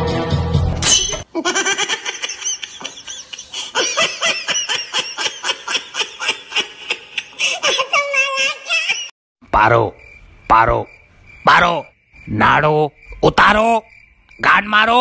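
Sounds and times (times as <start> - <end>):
music: 0.0 - 0.8
rapid high-pitched laughter: 1.3 - 9.1.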